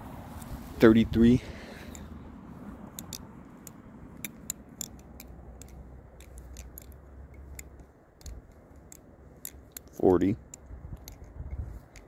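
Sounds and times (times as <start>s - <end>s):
butterfly knife clicking: 2.9s - 12.0s.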